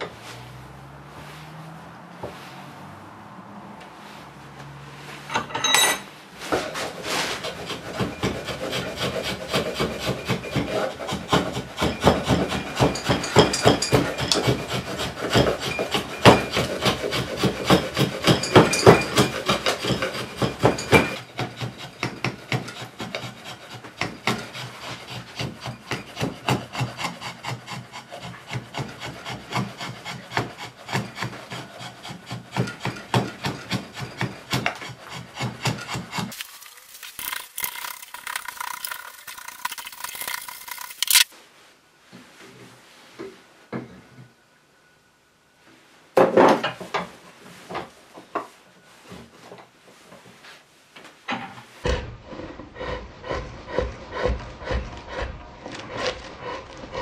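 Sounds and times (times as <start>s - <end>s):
scraping strokes on wood: 0.0s - 3.0s, 3.8s - 41.4s, 52.2s - 57.0s
metallic clink: 5.3s - 6.1s.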